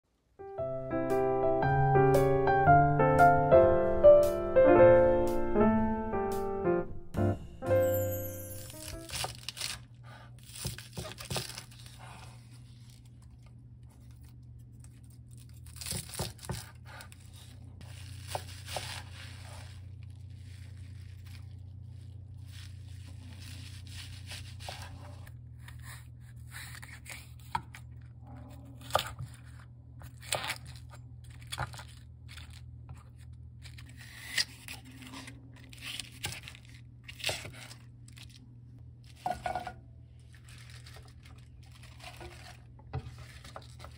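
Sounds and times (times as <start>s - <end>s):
knife scraping board: 23.4s - 27.3s.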